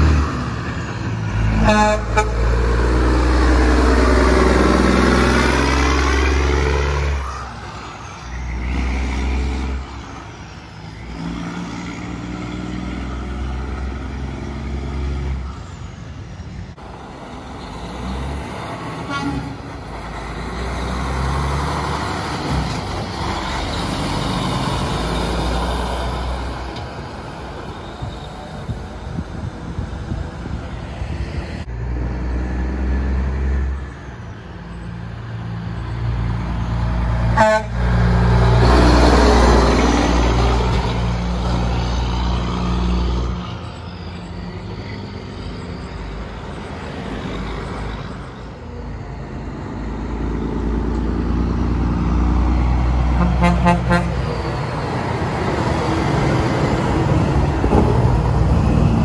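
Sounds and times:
diesel trucks driving past: 0.0 - 59.0
truck horn blasts: 1.5 - 2.6, 19.0 - 19.7, 37.3 - 38.0, 53.1 - 54.3.

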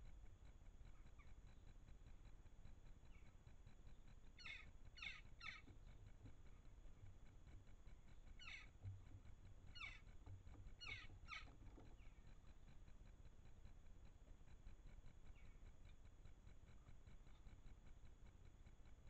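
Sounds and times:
crow calls: 4.4 - 5.6, 8.4 - 8.7, 9.8 - 10.0, 10.8 - 11.5.

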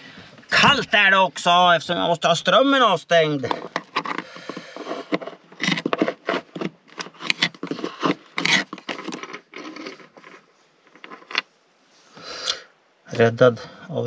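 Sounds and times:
hand tools scraping on wooden floor: 3.4 - 11.4.

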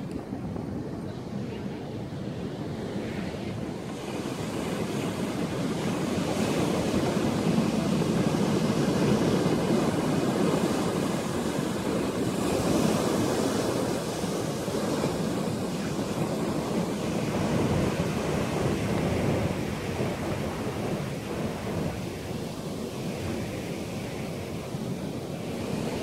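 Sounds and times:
ocean surf on pebble beach: 0.0 - 26.0.

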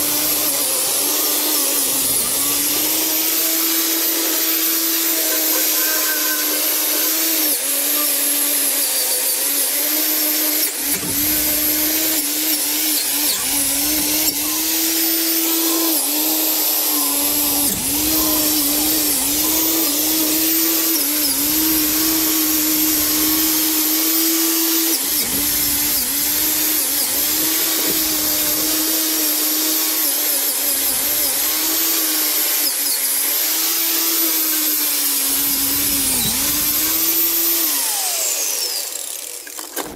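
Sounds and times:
angle grinder grinding metal: 0.0 - 39.9.

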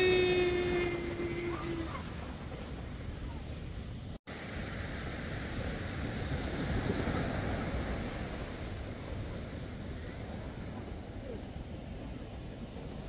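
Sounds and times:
surf breaking on beach: 0.0 - 13.0.

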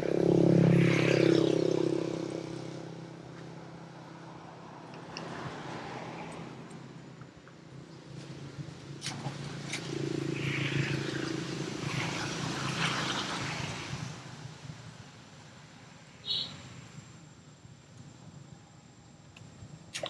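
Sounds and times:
vehicle engine passing by: 0.0 - 7.0, 8.0 - 14.5.

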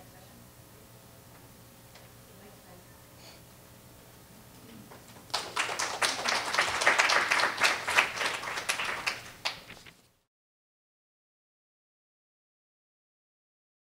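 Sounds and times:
audience applauding: 5.3 - 9.9.

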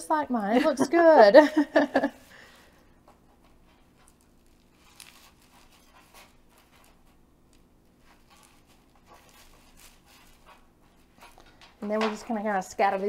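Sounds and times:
low room hum: 0.0 - 13.0
knife slicing crispy treats: 3.9 - 7.2, 8.0 - 11.4.

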